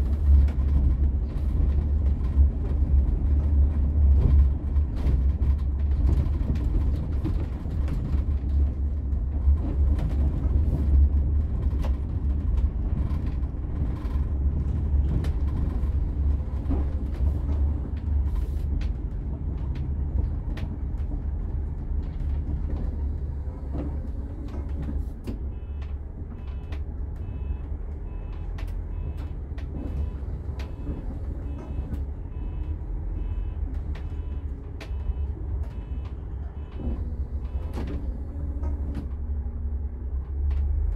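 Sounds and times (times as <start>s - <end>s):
engine and road rumble: 0.0s - 40.9s
interior creaks and rattles: 0.0s - 40.9s
faint high beep: 25.6s - 29.2s.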